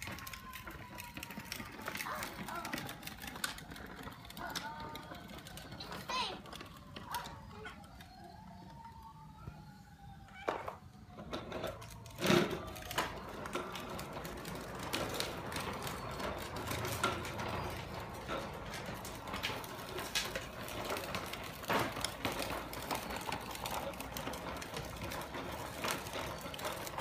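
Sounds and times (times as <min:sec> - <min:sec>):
plastic wheels clattering on stone: 0:00.0 - 0:09.0, 0:10.3 - 0:27.0.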